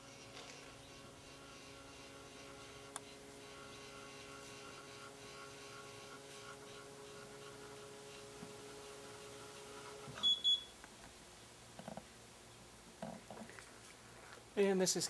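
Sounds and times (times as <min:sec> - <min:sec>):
electric motor humming: 0:00.0 - 0:10.2.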